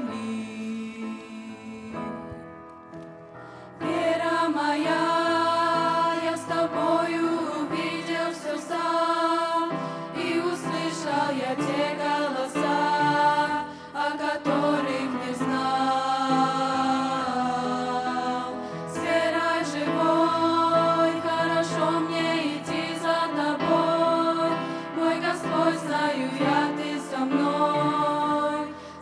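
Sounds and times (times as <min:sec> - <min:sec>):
girls' vocal group singing: 0:03.8 - 0:29.0.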